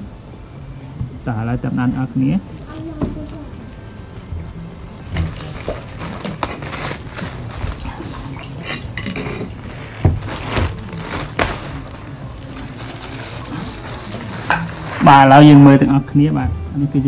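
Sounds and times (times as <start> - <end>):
plastic bag crinkling: 5.2 - 8.5, 9.6 - 15.6.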